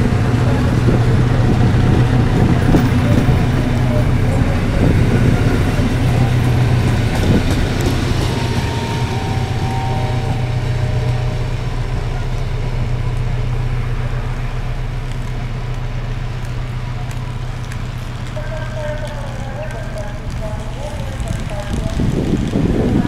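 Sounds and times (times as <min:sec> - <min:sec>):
diesel locomotive engine drone: 0:00.0 - 0:23.0.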